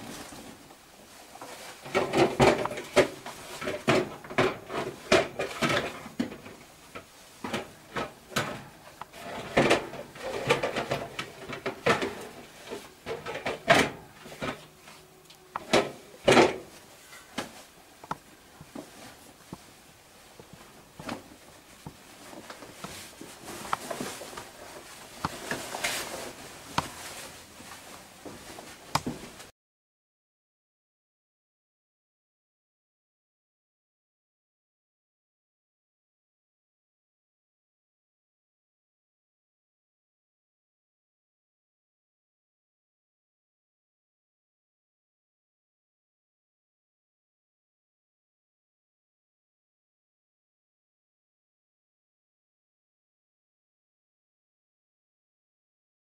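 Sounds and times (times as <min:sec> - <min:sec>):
scraping and rustling: 0:00.0 - 0:29.5.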